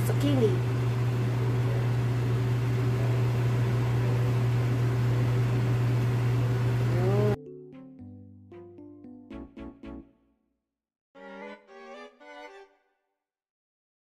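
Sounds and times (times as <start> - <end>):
kitchen fan humming: 0.0 - 7.4
music: 7.3 - 10.6, 11.2 - 13.2.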